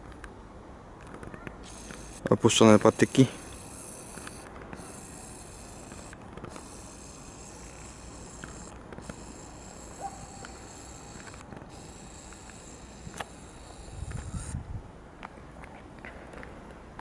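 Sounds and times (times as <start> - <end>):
high-pitched chirring: 1.6 - 14.6.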